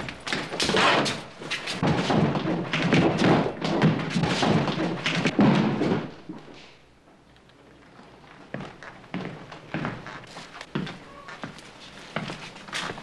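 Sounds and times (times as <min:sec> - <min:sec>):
boots thudding on wooden floor: 0:00.0 - 0:06.5.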